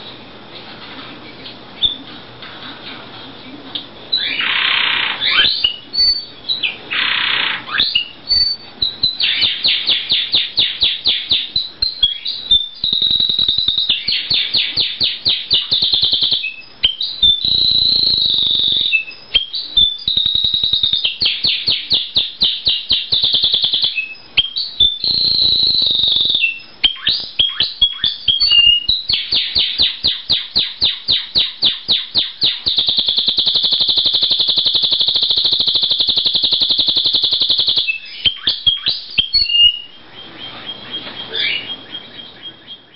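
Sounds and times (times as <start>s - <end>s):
canary singing trills: 1.2s - 2.1s, 2.9s - 42.9s.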